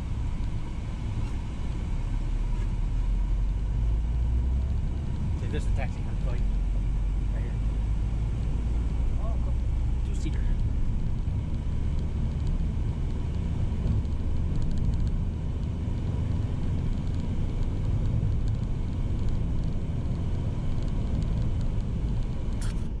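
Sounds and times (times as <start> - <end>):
van engine and tyres rumbling: 0.0 - 23.0.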